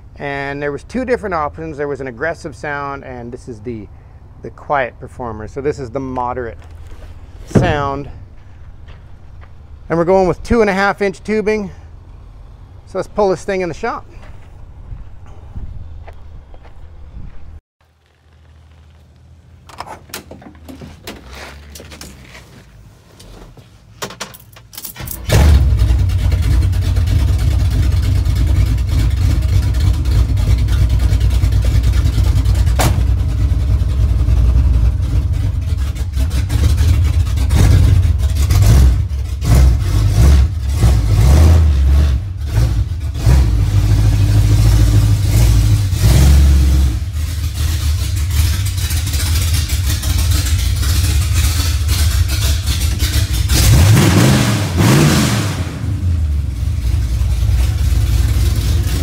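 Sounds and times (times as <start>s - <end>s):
car engine starting and revving: 25.0s - 59.0s.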